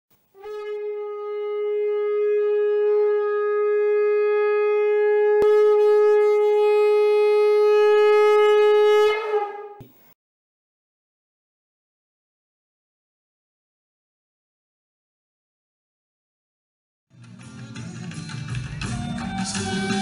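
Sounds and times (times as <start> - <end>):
conch shell blown: 0.4 - 10.0.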